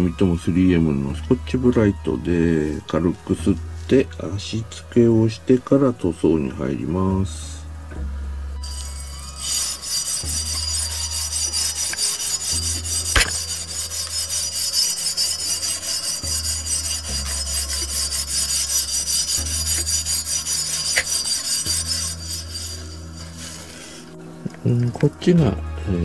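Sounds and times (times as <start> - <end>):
abrasive pad scrubbing metal: 8.6 - 24.2.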